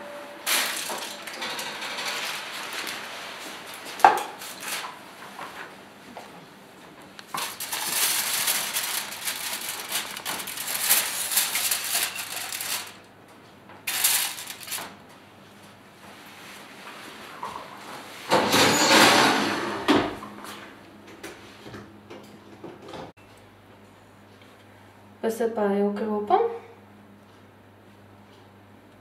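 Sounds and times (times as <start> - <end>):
aluminium foil crackling: 0.4 - 5.0, 7.1 - 13.1, 13.9 - 15.0.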